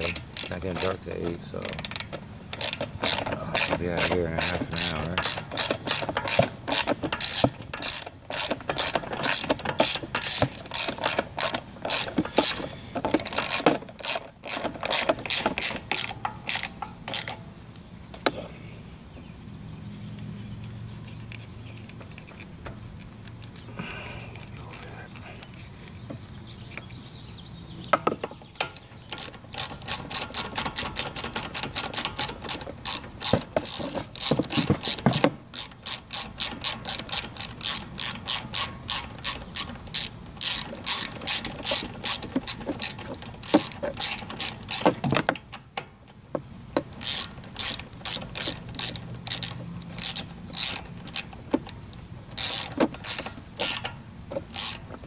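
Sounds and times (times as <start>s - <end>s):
ratchet wrench clicking: 0.0s - 17.4s, 28.0s - 45.8s, 46.8s - 55.0s
wrench knocking against metal: 0.0s - 17.4s, 27.9s - 45.8s.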